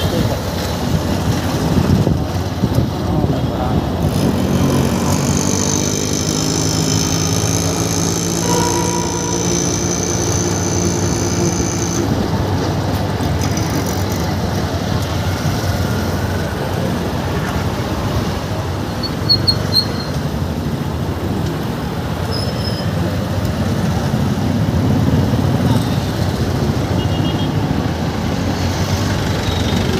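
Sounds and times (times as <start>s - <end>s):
road and traffic noise: 0.0s - 29.9s
pitched engine-like hum: 1.2s - 21.2s.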